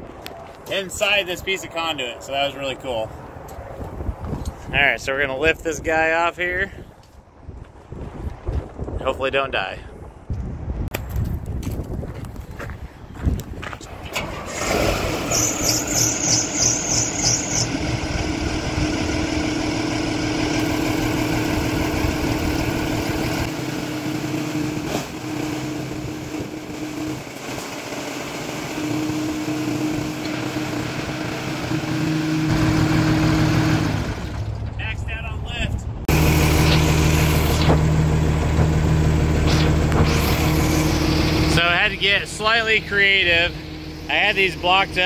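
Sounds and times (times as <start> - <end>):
forklift engine cranking: 13.8 - 23.7, 36.1 - 42.8
hydraulic hum: 13.9 - 34.7, 36.1 - 45.0.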